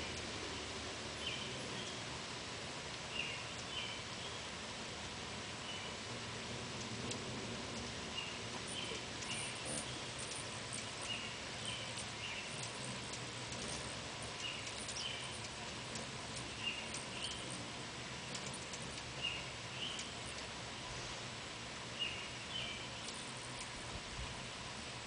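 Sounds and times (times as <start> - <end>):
background hiss: 0.0 - 25.0
hummingbirds chirping: 0.0 - 25.0
faint ticks: 2.8 - 4.0, 6.6 - 20.6, 22.5 - 24.0.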